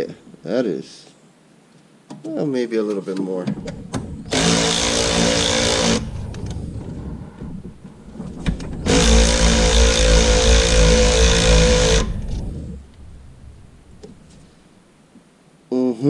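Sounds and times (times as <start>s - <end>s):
cordless power ratchet running: 4.3s - 6.4s, 8.9s - 12.7s.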